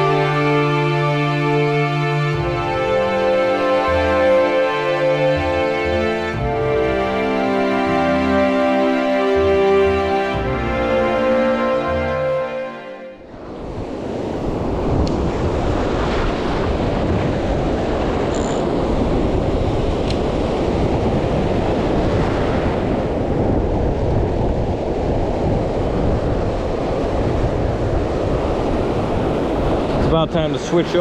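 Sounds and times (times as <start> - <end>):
ocean surf breaking: 0.0 - 31.0
wind rumbling on microphone: 13.2 - 31.0.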